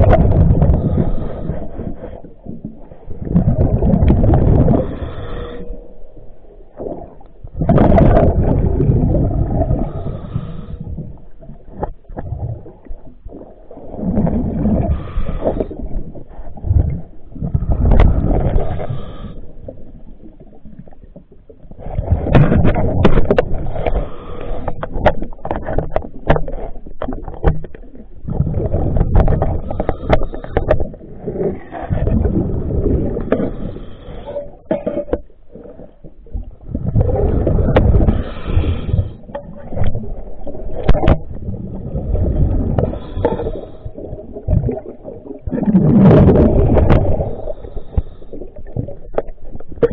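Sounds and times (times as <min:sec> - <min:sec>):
diver's breath bubbling underwater: 0:03.2 - 0:05.8, 0:06.8 - 0:11.2, 0:12.2 - 0:19.9, 0:28.2 - 0:34.9, 0:36.6 - 0:49.9.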